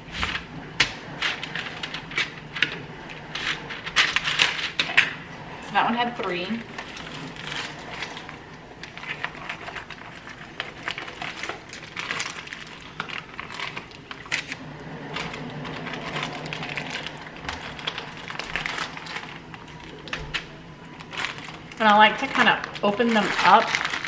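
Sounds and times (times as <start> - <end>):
plastic bag crinkling: 6.2 - 24.0.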